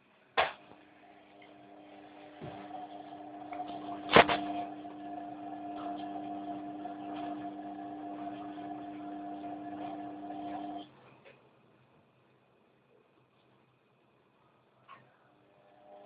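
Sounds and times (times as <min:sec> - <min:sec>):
washing machine humming: 0:00.6 - 0:11.0.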